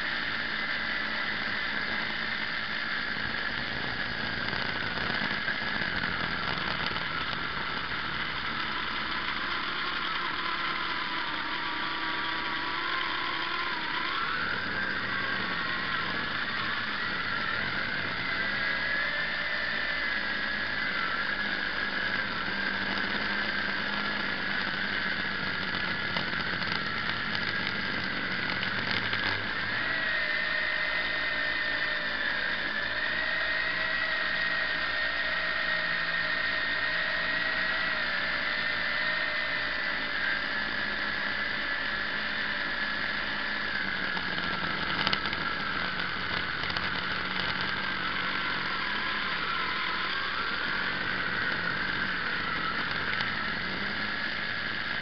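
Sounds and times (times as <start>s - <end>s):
drone propellers whining: 0.0s - 55.0s.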